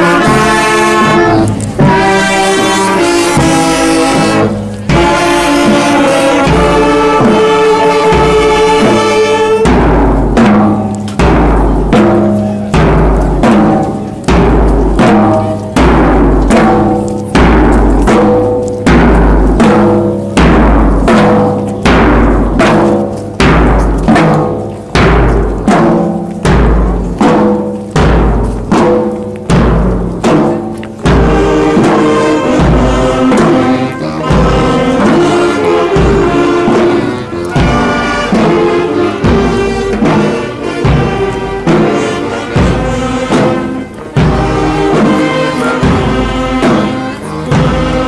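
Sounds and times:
marching brass band playing: 0.0s - 48.0s
bass drum striking: 0.2s - 36.9s.

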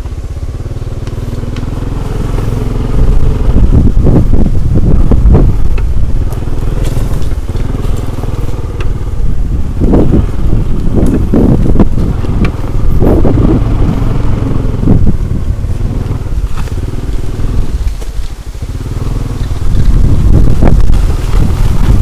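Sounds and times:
vehicle engine running: 0.0s - 22.0s.

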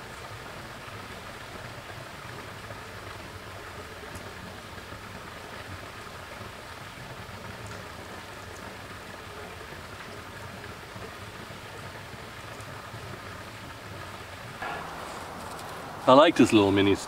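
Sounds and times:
creek water trickling over rocks: 0.0s - 17.0s.

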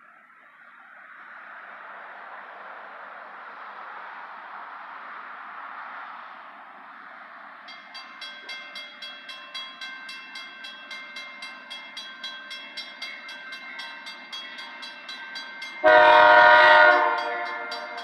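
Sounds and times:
crossing bell ringing: 7.6s - 18.0s
locomotive air horn: 15.8s - 17.9s.

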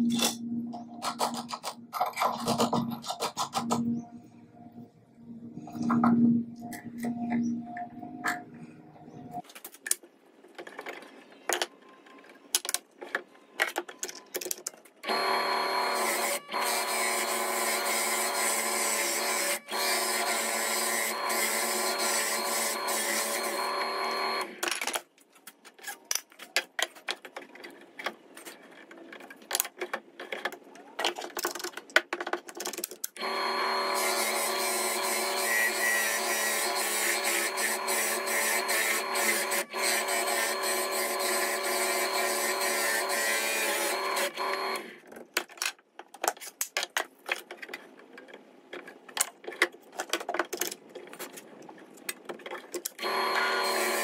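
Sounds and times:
drill press boring wood: 15.1s - 24.5s, 33.2s - 44.9s, 53.0s - 54.0s.

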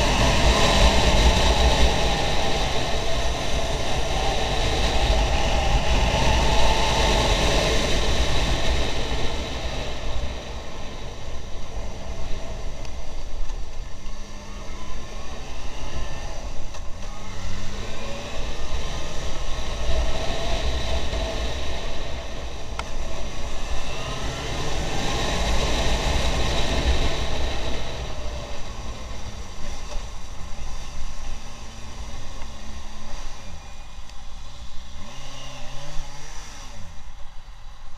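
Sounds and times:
wind buffeting microphone: 0.0s - 13.0s
motorcycle engine revving: 0.0s - 37.4s.

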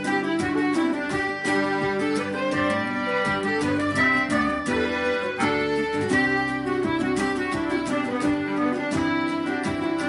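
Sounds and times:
band rhythmic accompaniment: 0.0s - 10.0s
fiddle melody: 0.0s - 10.0s.

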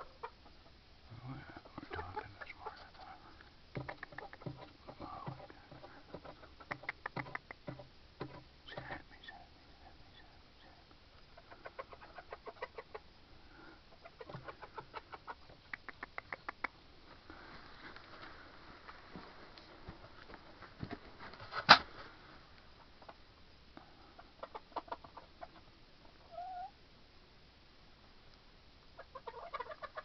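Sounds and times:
hens clucking: 0.0s - 0.8s, 1.4s - 8.9s, 11.2s - 16.7s, 24.0s - 26.7s, 29.0s - 30.0s
hens murmuring calls: 0.0s - 7.9s, 8.7s - 16.6s, 29.0s - 30.0s.

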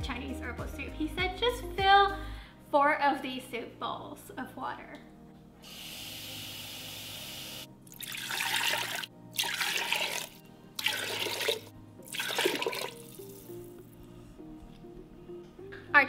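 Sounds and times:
faucet running into a bowl: 5.7s - 13.5s
water poured into a pot: 7.9s - 13.7s.

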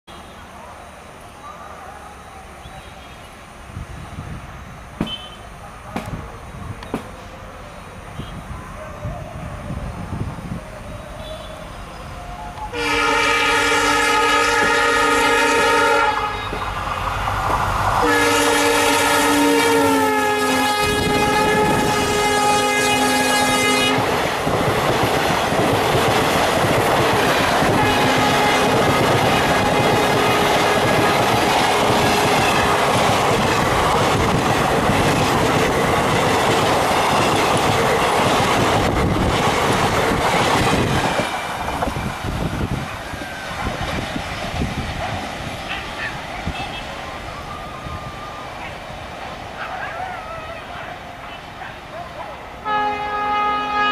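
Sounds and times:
train coaches running on rails: 0.1s - 53.9s
locomotive air horn blasts: 5.0s - 5.5s, 12.7s - 16.7s, 18.0s - 24.2s, 27.7s - 31.2s, 52.6s - 53.9s.

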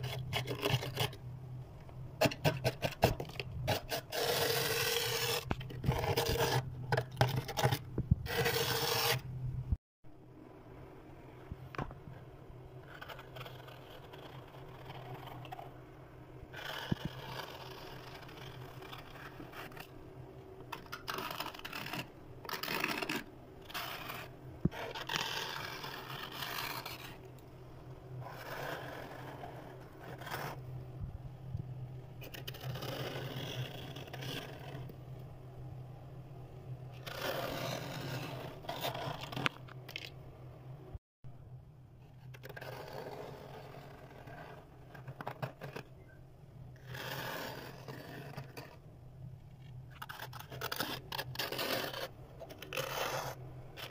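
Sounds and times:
plastic scraper scraping frost: 0.0s - 1.2s, 2.2s - 9.2s, 20.7s - 27.2s, 32.2s - 34.9s, 37.0s - 39.6s, 46.8s - 48.8s, 50.0s - 53.9s
steady low hum: 0.0s - 53.9s.

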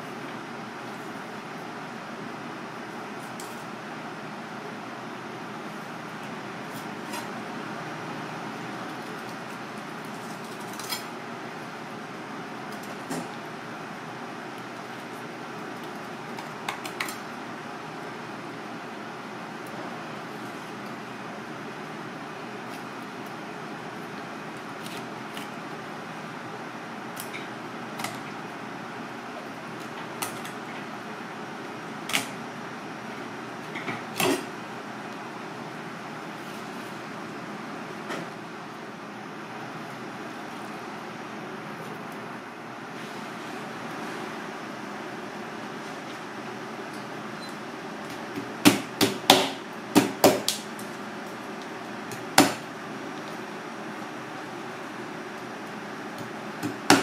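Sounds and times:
kitchen background noise: 8.6s - 11.6s
knife chopping on plastic cutting board: 48.3s - 50.6s, 52.1s - 52.6s.

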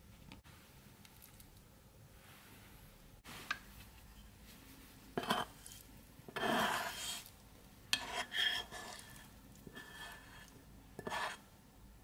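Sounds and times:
spatula scraping pan: 5.2s - 7.3s, 7.9s - 11.5s.

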